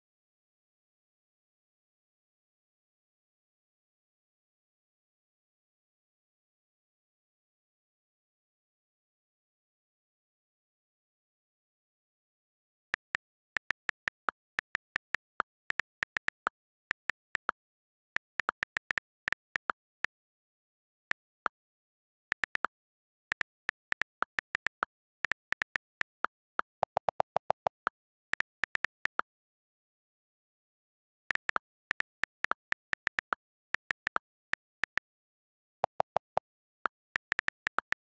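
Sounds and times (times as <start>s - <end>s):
on-screen keyboard clicks: 13.0s - 20.1s, 21.1s - 21.6s, 22.3s - 29.3s, 31.3s - 35.2s, 35.8s - 38.0s.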